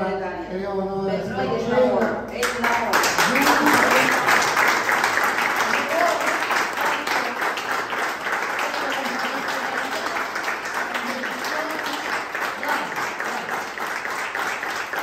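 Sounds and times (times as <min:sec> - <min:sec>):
people applauding: 0:02.3 - 0:15.0.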